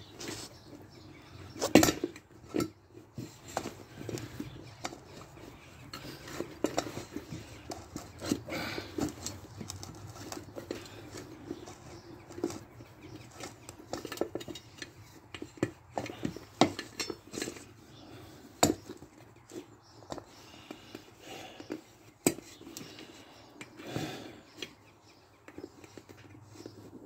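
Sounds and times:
light clinks and knocks: 0.2s - 17.8s.

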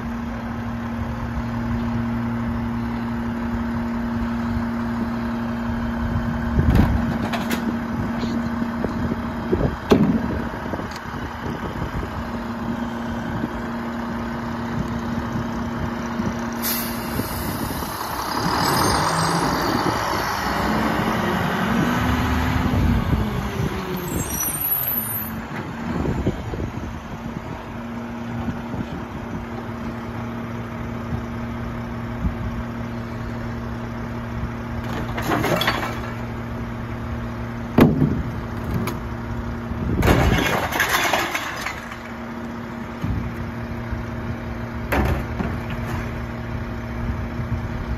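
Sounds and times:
diesel truck engine idling and revving: 0.0s - 47.9s
air brakes hissing: 16.6s - 18.1s
bin clanking and clattering: 34.8s - 36.2s, 40.0s - 42.1s, 44.9s - 46.2s.

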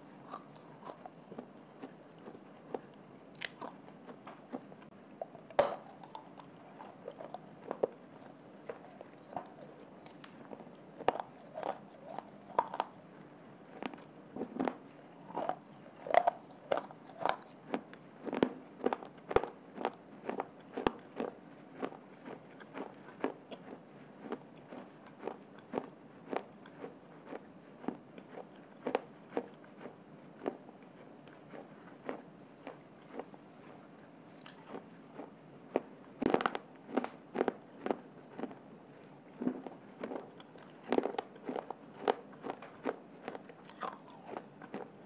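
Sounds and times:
person crunching baked clay: 13.7s - 33.4s, 34.4s - 38.6s, 39.3s - 45.0s.

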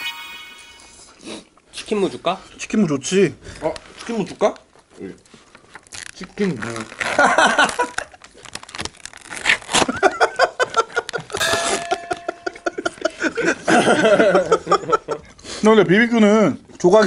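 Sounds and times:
men laughing: 12.6s - 15.3s.

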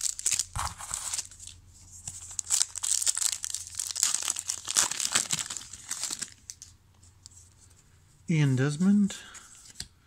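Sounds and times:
foil wrapper crinkling and tearing: 0.0s - 6.7s.

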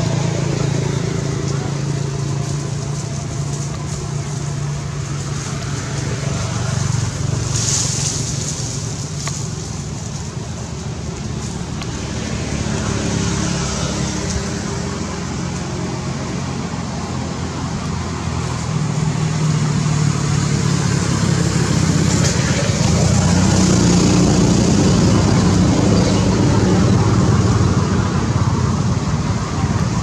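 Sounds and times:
traffic engine hum: 0.0s - 30.0s.

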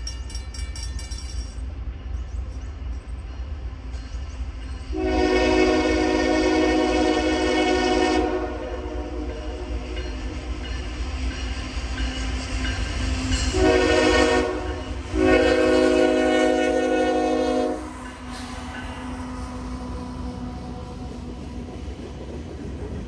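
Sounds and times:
train rumbling: 0.0s - 23.0s
locomotive air horn blasts: 4.9s - 9.9s, 13.5s - 18.0s.

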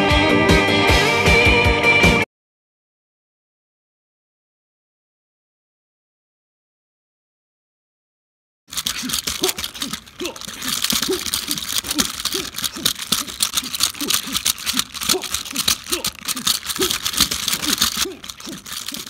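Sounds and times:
plastic toys clacking and rattling: 8.7s - 19.0s.

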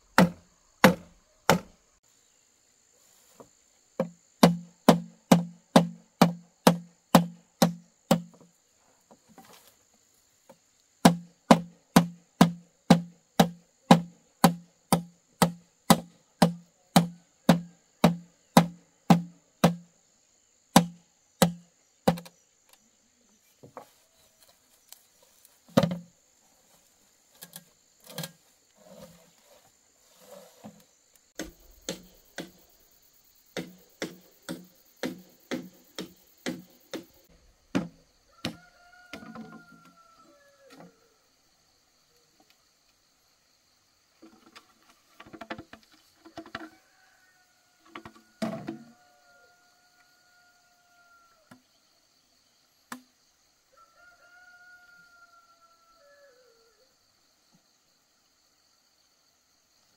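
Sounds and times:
hand tool knocking: 4.0s - 8.3s, 11.0s - 19.8s, 31.4s - 32.6s, 33.6s - 37.2s.

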